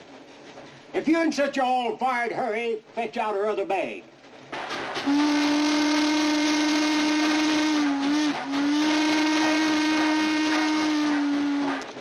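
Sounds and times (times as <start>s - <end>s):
steam hissing: 4.4s - 12.0s
steam locomotive whistle: 5.0s - 12.0s.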